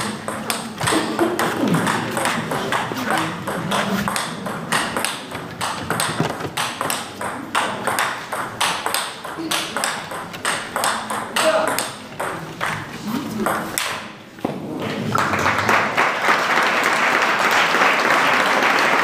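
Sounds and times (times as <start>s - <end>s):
table tennis ball clicking: 1.8s - 12.7s.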